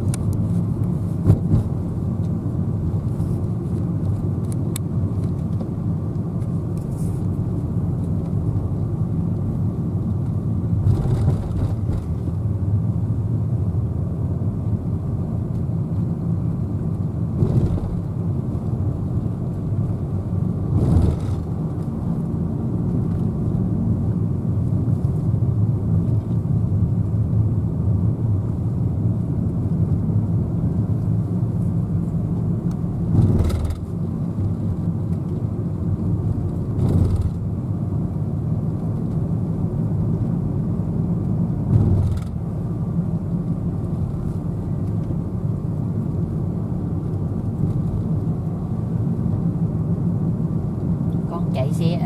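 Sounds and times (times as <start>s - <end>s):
car engine and tyre drone: 0.0s - 51.8s.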